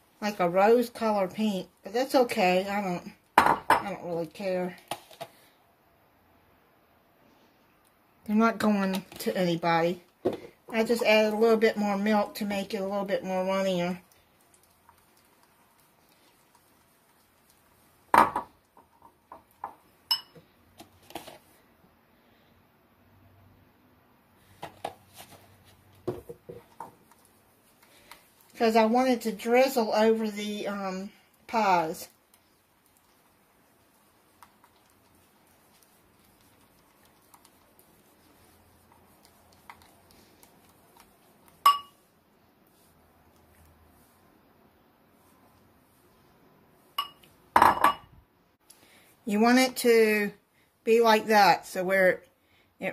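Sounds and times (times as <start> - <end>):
wire whisk stirring in a bowl: 11.0 - 18.1, 26.6 - 42.0
whisk clinking on bowl: 41.6 - 42.0, 47.0 - 48.1.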